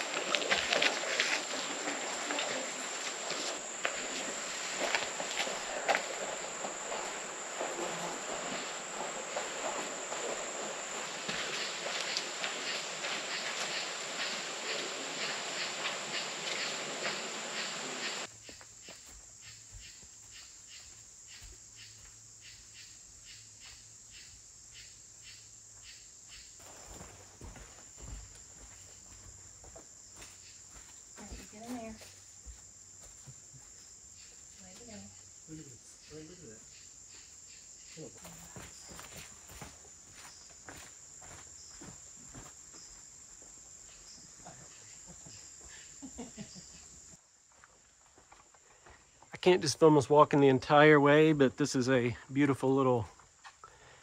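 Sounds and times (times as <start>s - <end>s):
footsteps on trail: 0.0s - 22.3s, 26.3s - 34.9s, 38.0s - 45.9s, 47.5s - 49.4s
insects chirping: 0.0s - 54.0s.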